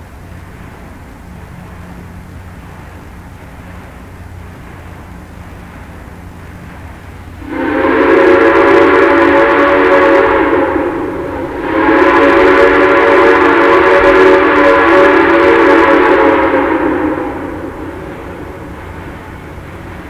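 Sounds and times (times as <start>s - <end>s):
steam locomotive whistle blasts: 7.4s - 18.8s.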